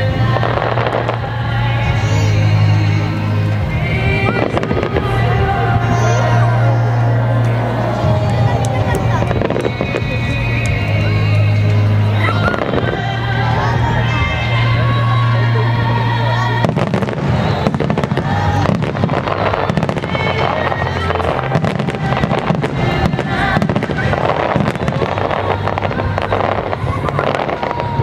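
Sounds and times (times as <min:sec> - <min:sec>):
rapid firework crackling: 0:00.0 - 0:01.6, 0:16.5 - 0:28.0.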